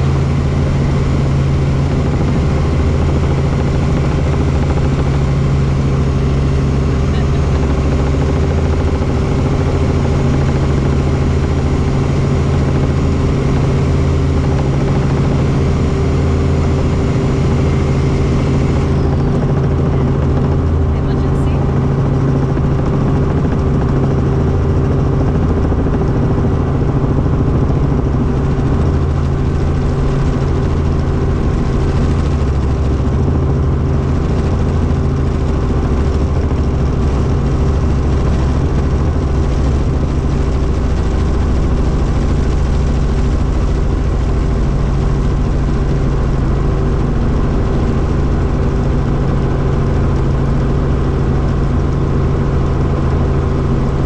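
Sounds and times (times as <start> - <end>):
helicopter engine and rotor drone: 0.0 - 54.0.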